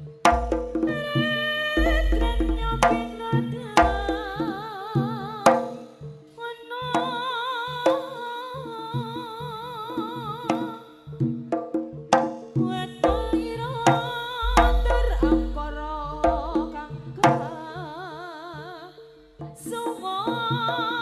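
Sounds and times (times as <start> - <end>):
hand drums beating: 0.0 - 5.9, 9.0 - 17.7
bass drum thumps: 0.3 - 0.9, 1.8 - 4.4, 13.0 - 13.6, 14.4 - 17.5.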